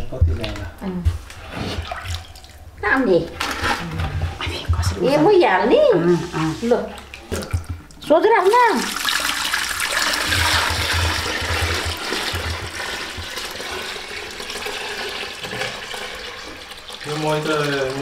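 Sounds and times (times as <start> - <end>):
liquid pouring into plastic bucket: 6.9 - 18.0.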